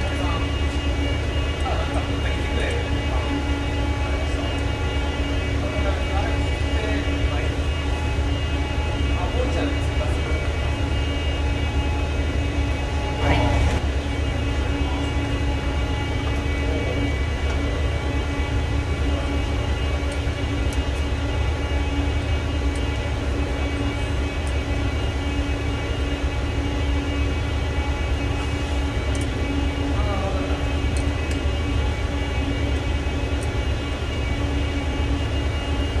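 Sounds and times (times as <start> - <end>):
machinery droning: 0.0 - 36.0
steady tones: 0.0 - 36.0.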